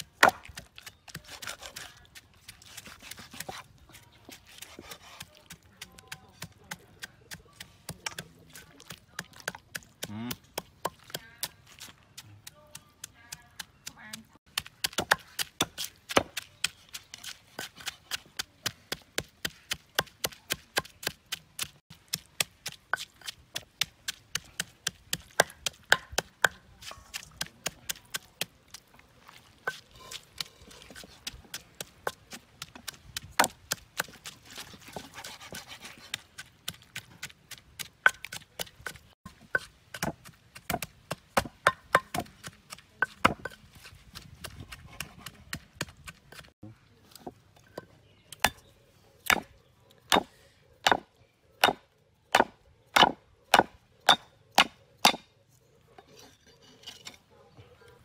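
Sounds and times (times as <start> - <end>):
cleaver chopping bones on wood: 0.1 - 0.8, 14.5 - 16.4, 18.6 - 26.6, 37.8 - 43.6, 49.2 - 49.5, 50.1 - 55.3.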